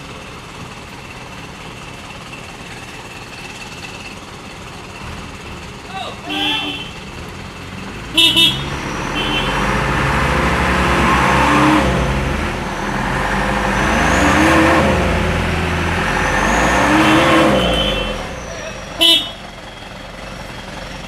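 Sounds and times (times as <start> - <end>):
diesel truck engines revving: 0.0 - 21.0
truck horn toots: 6.2 - 7.2, 8.1 - 19.8.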